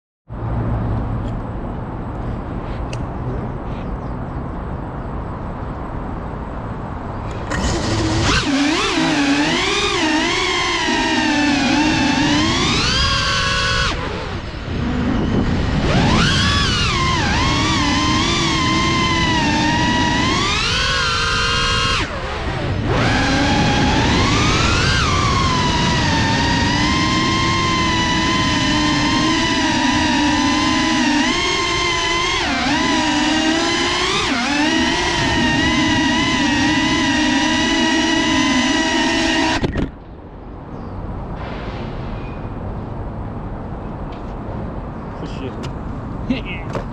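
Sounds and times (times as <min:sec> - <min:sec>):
drone motors and propellers whining: 0:06.0 - 0:41.2
rush of air: 0:41.3 - 0:42.8.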